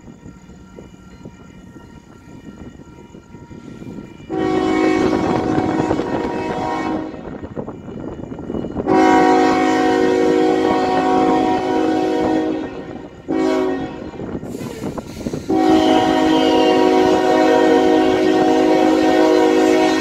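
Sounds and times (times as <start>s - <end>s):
train rumbling: 0.0s - 20.0s
locomotive air horn blasts: 4.3s - 7.3s, 8.8s - 14.6s, 15.4s - 20.0s.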